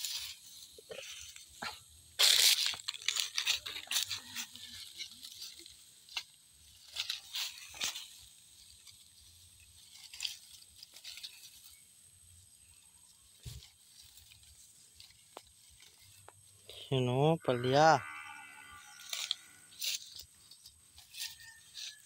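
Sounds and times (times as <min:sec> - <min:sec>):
leaves rustling and stems tearing: 0:02.2 - 0:12.2, 0:18.6 - 0:22.0.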